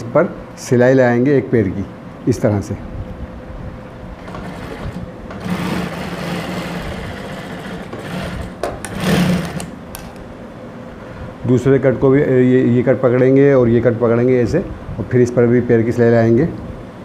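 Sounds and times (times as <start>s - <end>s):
industrial sewing machine running: 4.2s - 9.7s.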